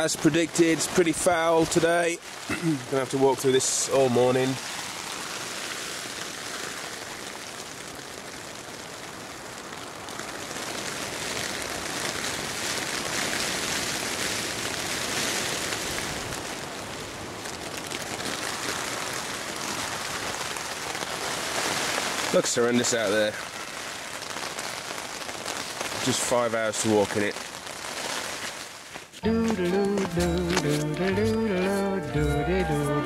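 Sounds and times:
heavy rain falling: 0.0s - 31.6s.

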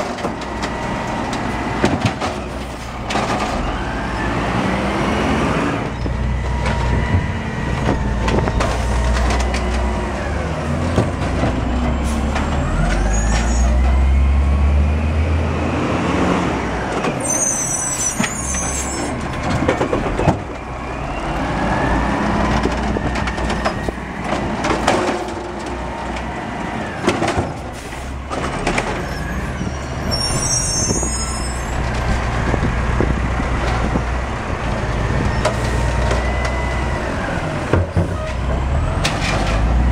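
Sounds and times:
garbage truck engine revving: 0.0s - 17.5s
short high squeals: 17.2s - 19.2s, 29.0s - 31.8s.

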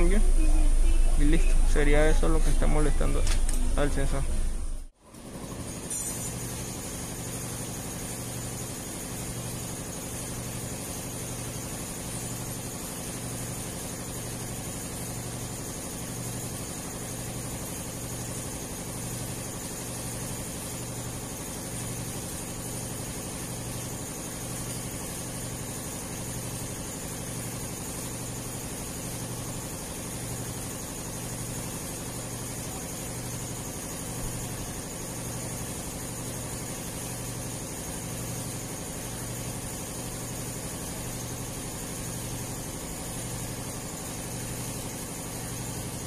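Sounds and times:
constant hiss: 0.0s - 4.9s
pulsing low hum: 0.0s - 4.9s.

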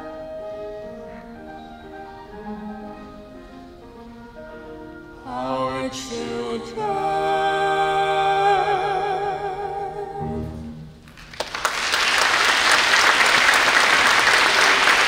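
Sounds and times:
low orchestral accompaniment: 0.0s - 11.2s
audience applause: 11.1s - 15.0s.

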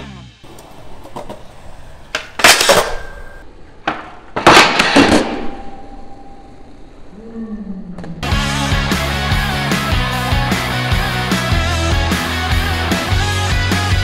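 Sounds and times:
skateboard wheels rolling on concrete: 0.4s - 5.1s.

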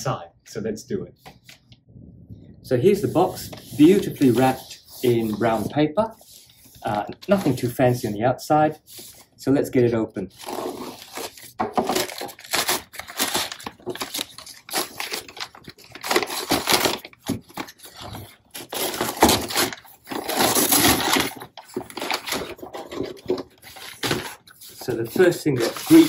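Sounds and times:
paper ripping and crinkling: 3.0s - 5.7s, 10.3s - 26.0s
knife slitting paper: 3.1s - 7.6s, 10.4s - 26.0s.

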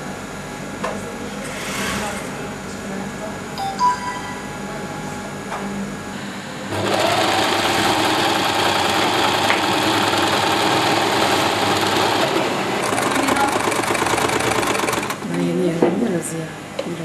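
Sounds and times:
sewing machine motor whine: 6.6s - 15.4s.

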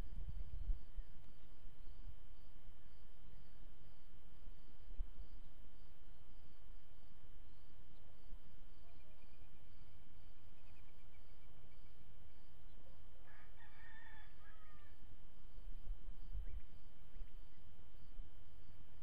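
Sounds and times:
wind rumble on microphone: 0.0s - 3.0s, 15.5s - 19.0s.

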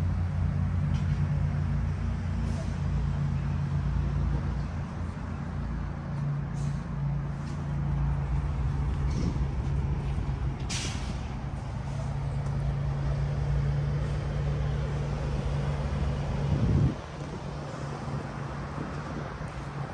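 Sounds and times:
short hiss: 10.7s - 11.2s.

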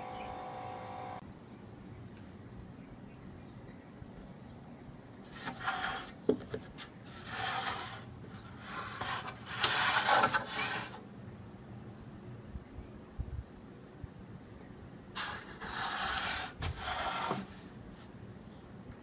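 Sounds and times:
metal case scraping on wood: 5.3s - 6.2s, 7.1s - 11.0s.

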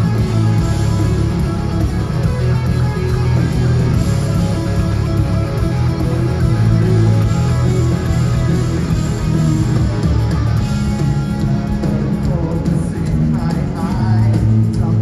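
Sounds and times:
drums: 0.0s - 15.0s
electric guitars: 0.0s - 15.0s.

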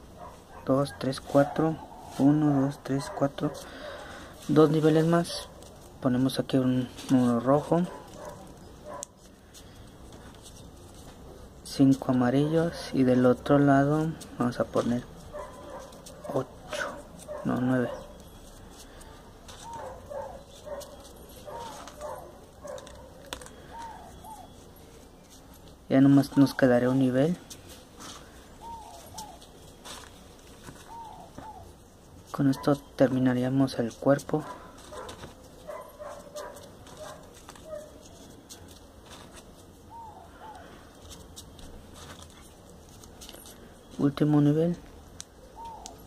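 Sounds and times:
animal whining faintly: 15.4s - 25.0s
dog whining and yelping: 19.6s - 24.9s, 28.6s - 29.6s, 30.8s - 31.8s, 34.5s - 38.3s, 39.8s - 40.9s
paper rustling and clicks: 20.8s - 23.9s, 36.4s - 39.5s.

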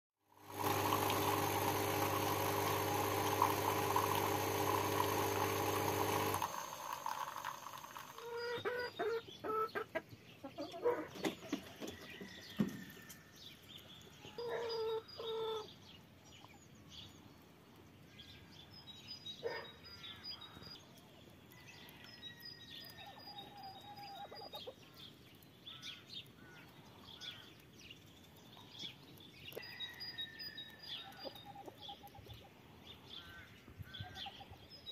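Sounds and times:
small birds chirping: 7.9s - 34.9s
hens clucking: 8.0s - 11.9s, 23.4s - 24.8s.

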